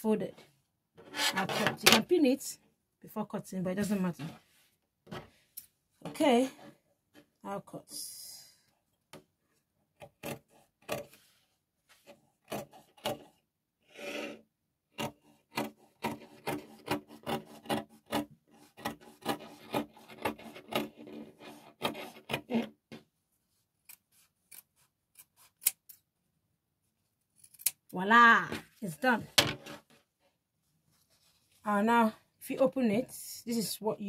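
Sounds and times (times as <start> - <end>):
scissors snipping fabric: 10.0 - 11.2, 12.0 - 13.4, 15.0 - 22.7, 23.8 - 26.0, 27.4 - 27.9.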